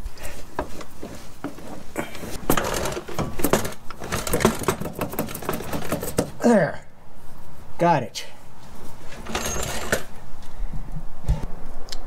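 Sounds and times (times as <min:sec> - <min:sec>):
metal clicking and knocking: 0:00.6 - 0:06.4, 0:09.1 - 0:10.2.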